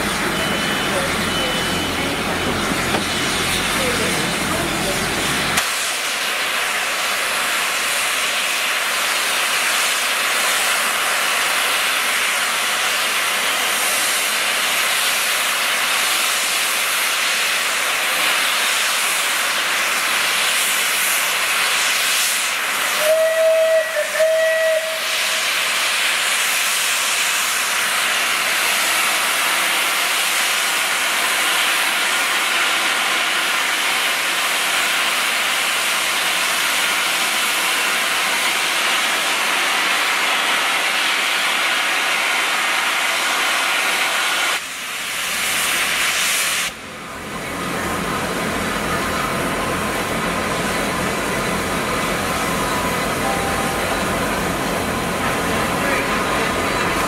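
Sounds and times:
steam locomotive hissing steam: 0:00.0 - 0:57.0
steam whistle blasts: 0:22.9 - 0:26.0, 0:53.2 - 0:54.0.

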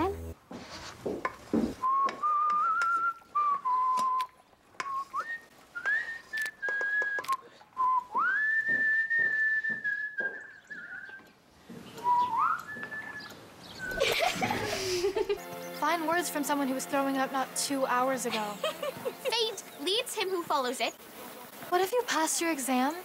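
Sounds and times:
person whistling a slow tune: 0:01.8 - 0:11.3, 0:12.0 - 0:14.0.

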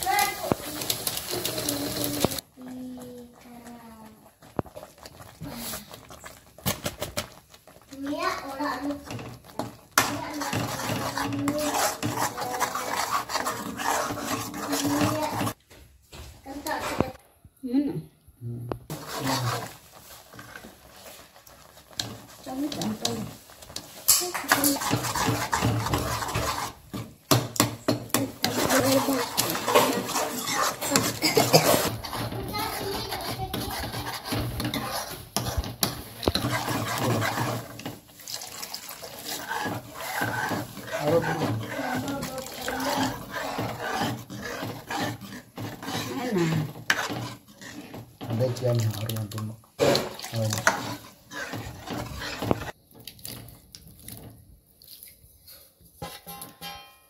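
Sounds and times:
steel ladle scraping a pan: 0:00.0 - 0:02.4, 0:07.6 - 0:15.6, 0:18.9 - 0:52.8
water poured into gravy: 0:38.2 - 0:41.2.

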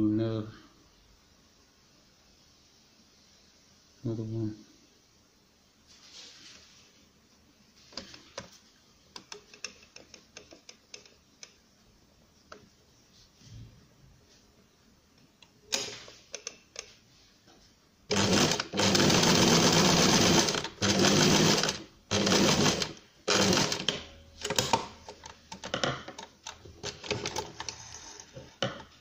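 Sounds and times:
sewing machine stitching: 0:18.1 - 0:25.7, 0:26.4 - 0:28.4.

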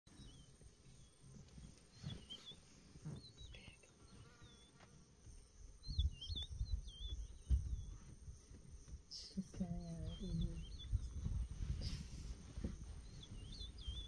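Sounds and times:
insects chirring: 0:00.2 - 0:14.0
low microphone rumbles: 0:05.2 - 0:14.0
whistled bird calls: 0:13.0 - 0:14.0.

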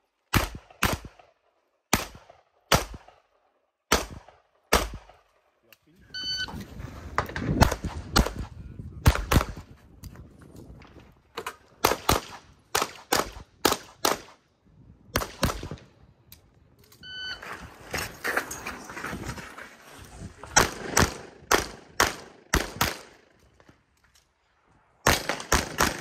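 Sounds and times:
pistol shots: 0:00.3 - 0:01.3, 0:01.9 - 0:03.2, 0:03.9 - 0:05.2, 0:07.6 - 0:09.6, 0:11.8 - 0:14.4, 0:20.6 - 0:23.2, 0:25.0 - 0:26.0
shot timer beep: 0:06.2 - 0:06.5.

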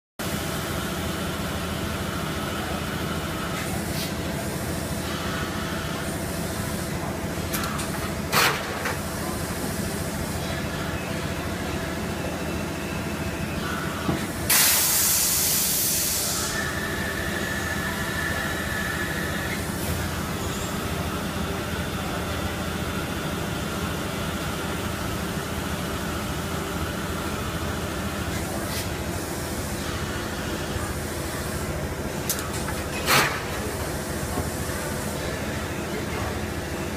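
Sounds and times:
loud hiss: 0:14.5 - 0:17.0.

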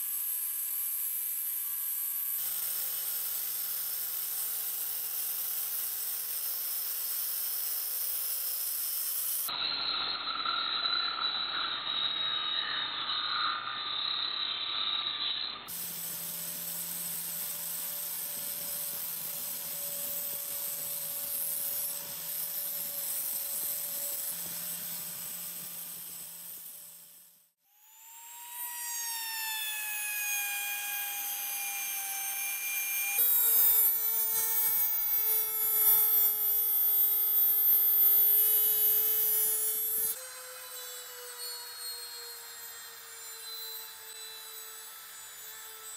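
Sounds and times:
power sander on wood: 0:00.0 - 0:45.9
loud high motor whine: 0:09.2 - 0:45.9.

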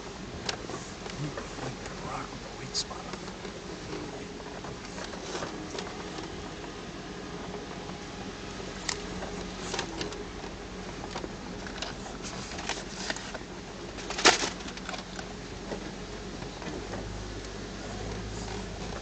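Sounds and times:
low engine hum: 0:00.0 - 0:19.0
rattles and knocks from vehicle body: 0:08.8 - 0:19.0.

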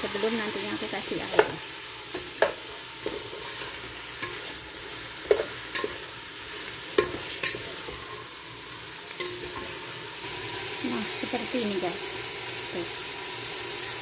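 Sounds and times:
chicken sizzling in a pot: 0:00.0 - 0:14.0
wooden spatula scraping pot: 0:01.3 - 0:08.3.

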